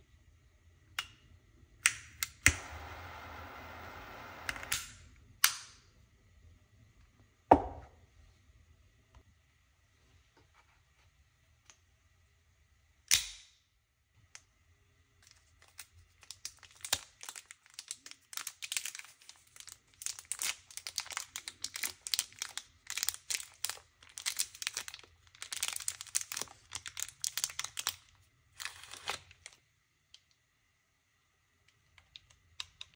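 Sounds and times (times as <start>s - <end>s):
cellophane wrapper crinkling and tearing: 15.2s - 29.6s.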